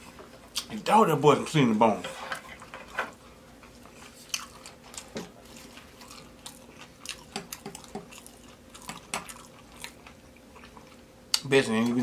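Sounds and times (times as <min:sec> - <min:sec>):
person chewing crunchy food: 0:03.7 - 0:11.4.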